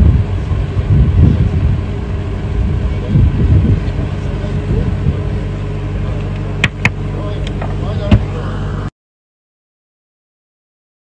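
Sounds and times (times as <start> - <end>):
low rumble: 0.0 - 8.9
steady hum: 0.0 - 8.9.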